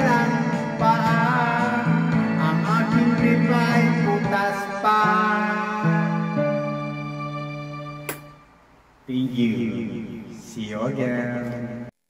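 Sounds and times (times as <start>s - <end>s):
man singing into microphone: 0.0s - 6.6s, 9.1s - 11.9s
backing track with guitar: 0.0s - 8.4s.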